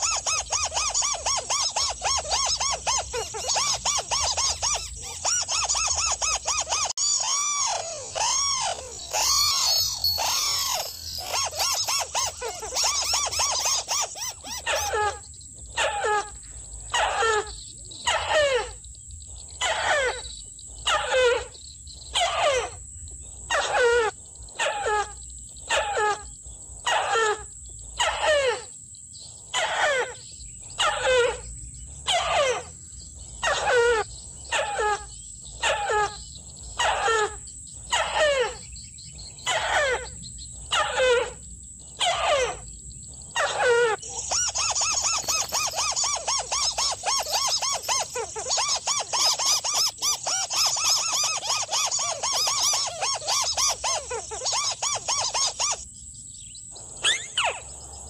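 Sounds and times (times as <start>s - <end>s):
crake downward-sliding calls: 5.6s - 14.0s, 43.4s - 55.7s
crake rapid chatter: 7.8s - 14.6s, 43.5s - 52.8s.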